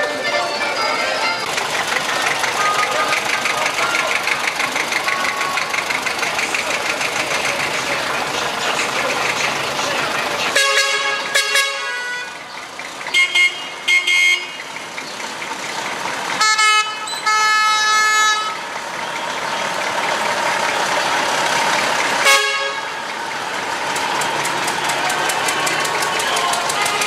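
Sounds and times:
tractor and truck engines running: 0.0 - 27.0
vehicle horn tooting: 2.5 - 4.1, 10.5 - 12.4, 13.1 - 14.7, 16.4 - 18.6, 22.2 - 23.0.

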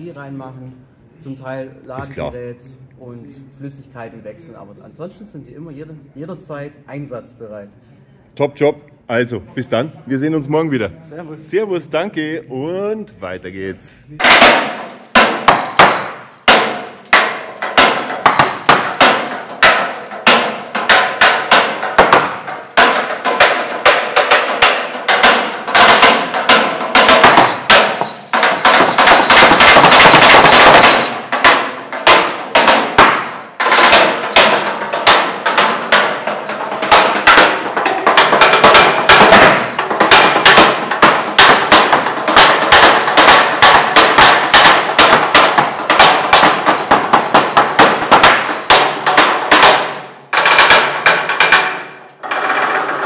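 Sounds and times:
sticks drumming on metal tubes: 14.2 - 53.0.

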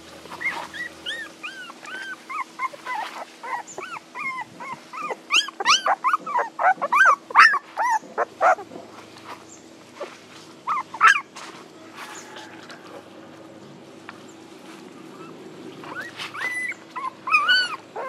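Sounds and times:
puppies whimpering: 0.2 - 9.0, 9.9 - 11.4, 14.8 - 18.0.

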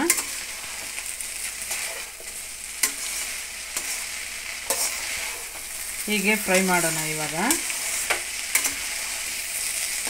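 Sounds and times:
vegetables sizzling in oil: 0.0 - 10.0
metal spatula clicking on pan: 2.8 - 3.0, 7.5 - 8.8.

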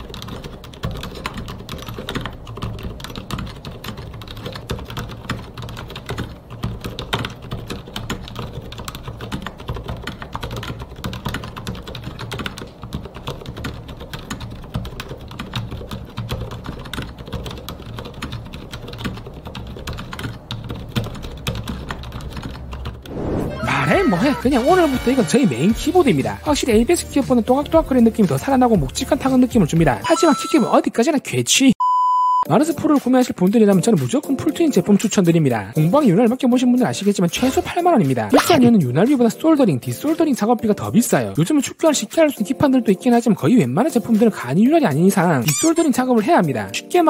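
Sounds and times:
fast mechanical keyboard typing: 0.0 - 23.1.

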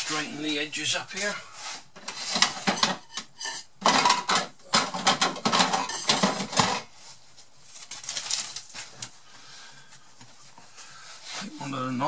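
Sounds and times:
cutlery clattering: 2.0 - 6.9.

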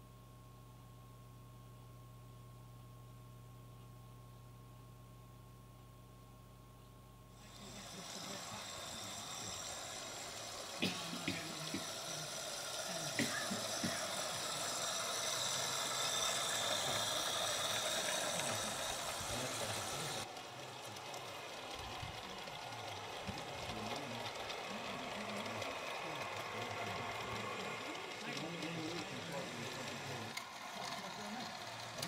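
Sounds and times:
steady high hiss: 7.3 - 20.3
model train motor whirr: 7.4 - 32.0
train wheel rattle: 7.5 - 32.0.

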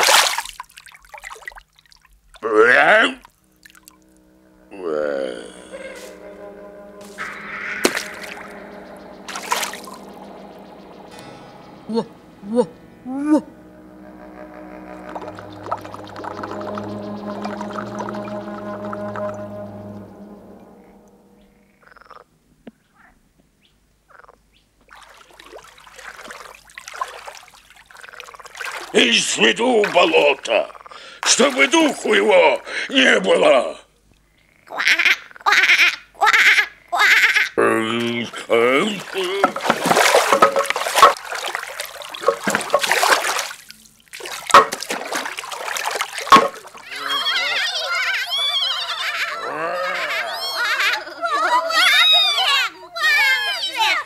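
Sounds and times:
water splashing and trickling: 0.0 - 4.3, 6.0 - 12.7, 14.9 - 20.6, 24.8 - 32.7, 37.8 - 48.3
frogs croaking: 1.2 - 51.8
sharp knocks: 44.5 - 44.9, 46.3 - 46.6.

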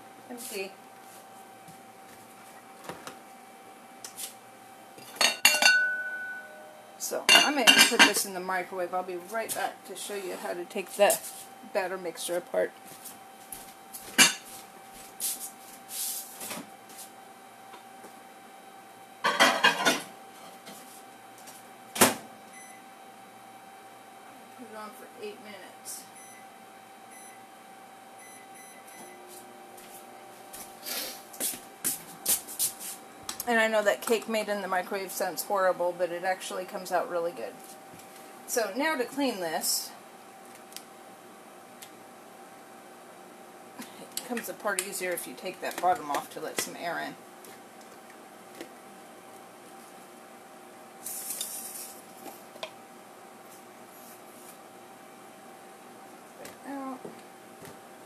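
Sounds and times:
microwave oven humming: 0.0 - 58.0
microwave keypad beeps: 22.5 - 22.8, 26.2 - 26.5, 27.1 - 27.4, 28.2 - 29.2.

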